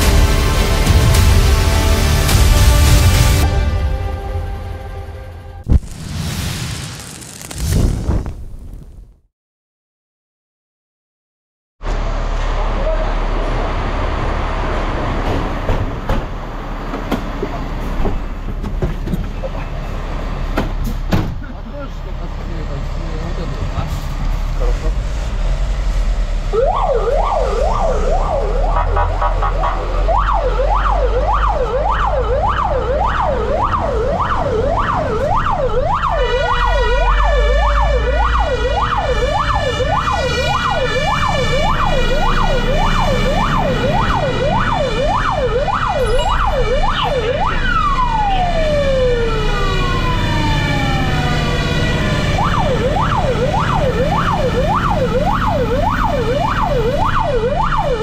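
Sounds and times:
truck engine rumble: 11.8 - 58.0
steady siren tone: 26.4 - 58.0
fire engine siren yelping: 26.5 - 58.0.

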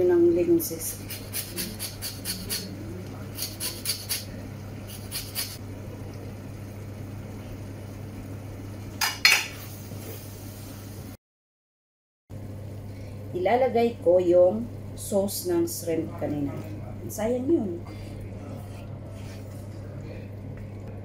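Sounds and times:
low steady hum: 0.0 - 11.2, 12.3 - 21.0
metal clatter against pan: 9.0 - 9.6.

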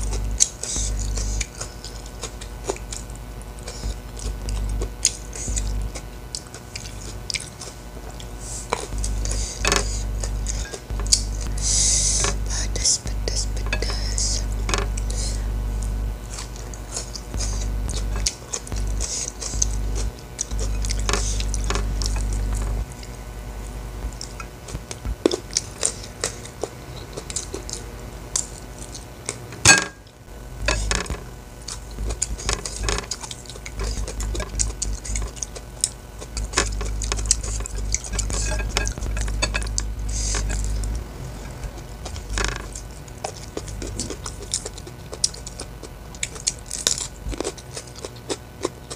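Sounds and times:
fingers and food clicking on plate: 0.0 - 11.5, 12.1 - 15.2, 30.6 - 41.0, 42.1 - 48.9
chewing and mouth sounds: 0.0 - 23.3, 23.9 - 29.5, 30.6 - 48.9.

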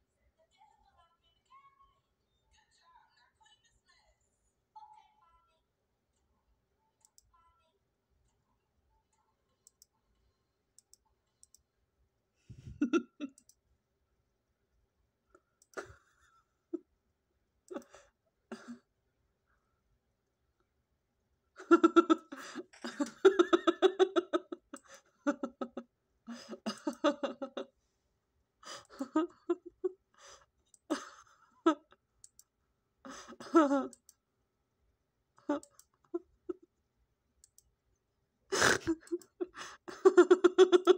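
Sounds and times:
high-pitched laughter-like voice: 21.6 - 27.7, 38.6 - 40.9.

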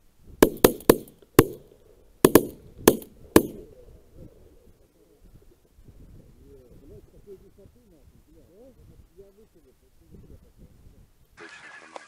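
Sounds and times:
shotguns firing: 0.4 - 3.6.

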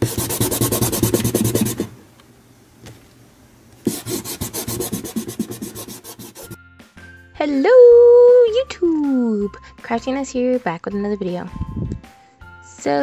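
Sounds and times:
eraser rubbing on paper: 0.0 - 1.9, 3.9 - 6.6.

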